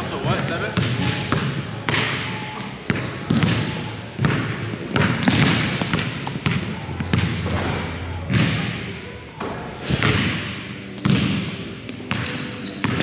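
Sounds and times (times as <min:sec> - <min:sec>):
basketball bouncing on wooden floor: 0:02.9 - 0:08.7.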